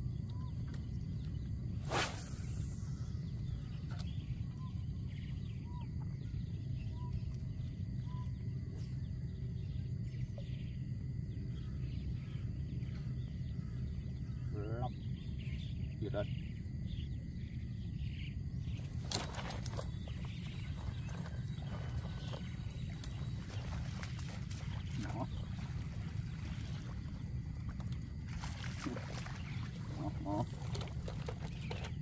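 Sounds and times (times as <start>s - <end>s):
low rumble: 0.0s - 31.9s
bird chirps: 2.4s - 27.8s.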